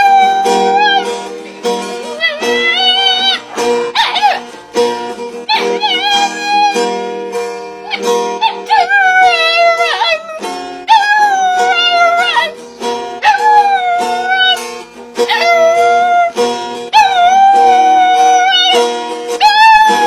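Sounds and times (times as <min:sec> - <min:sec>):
strummed acoustic guitar: 0:00.0 - 0:20.0
dog howling: 0:02.2 - 0:04.5, 0:05.5 - 0:06.8, 0:07.9 - 0:12.5, 0:13.2 - 0:14.6, 0:15.2 - 0:18.8, 0:19.4 - 0:20.0.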